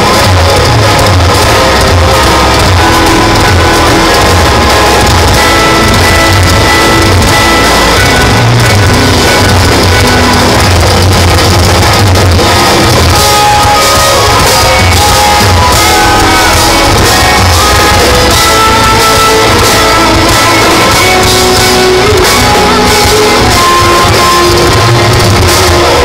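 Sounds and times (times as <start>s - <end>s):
drum kit: 0.0s - 26.0s
electric guitars: 0.0s - 26.0s.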